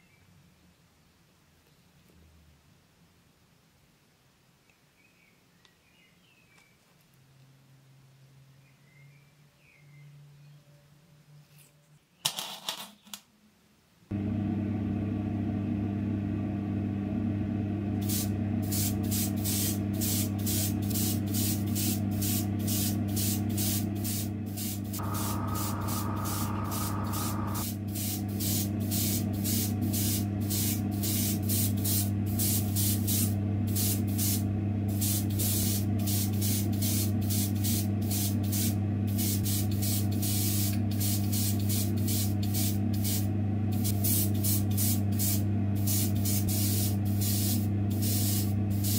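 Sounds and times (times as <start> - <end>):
steady motor hum: 14.1 - 48.9
airbrush spraying hiss bursts: 18.0 - 48.9.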